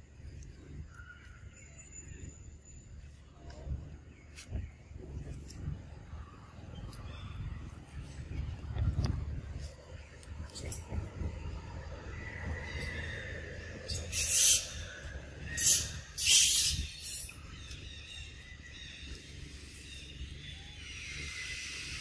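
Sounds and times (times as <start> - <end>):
low steady rumble: 0.0 - 22.0
macaques screeching: 12.6 - 17.4.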